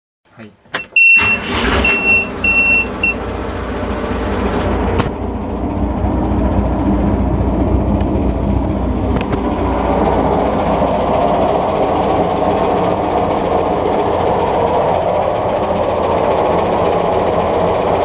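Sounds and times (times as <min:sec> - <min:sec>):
warning buzzer beeping: 0:00.8 - 0:03.2
diesel engine idling: 0:00.9 - 0:18.0.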